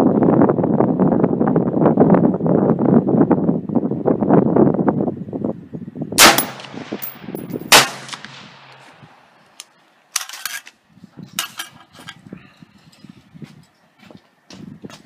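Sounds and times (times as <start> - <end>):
rifle shots with echo: 6.2 - 9.3.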